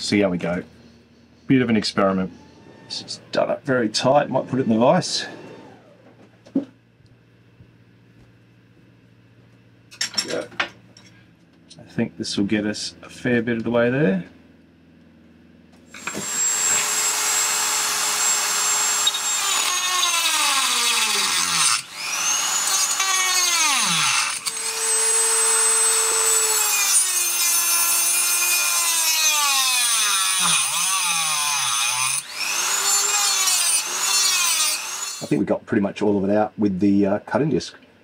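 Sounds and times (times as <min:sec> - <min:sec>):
rotary tool cutting metal: 0:15.9 - 0:35.3.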